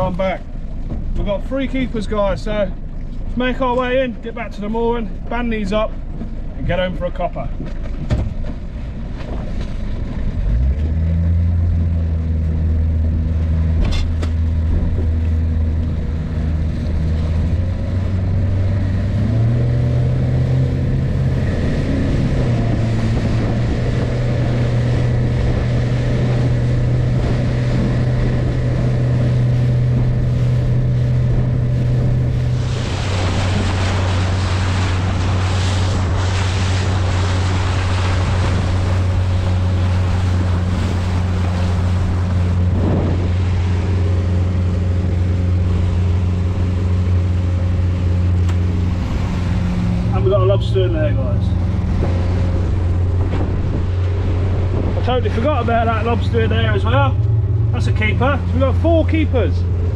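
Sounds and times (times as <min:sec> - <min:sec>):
outboard motor running: 0:00.0 - 0:59.9
water rushing off hull: 0:00.0 - 0:59.9.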